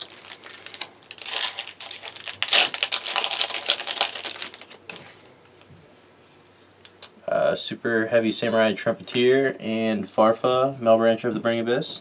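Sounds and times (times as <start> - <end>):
foil wrapper crinkling: 0.0 - 5.3.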